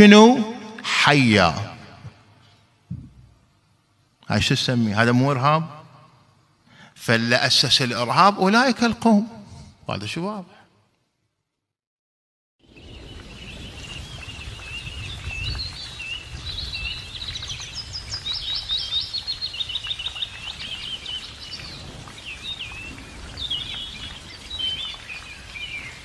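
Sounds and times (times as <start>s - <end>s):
songbirds chirping and trilling: 12.7s - 26.0s.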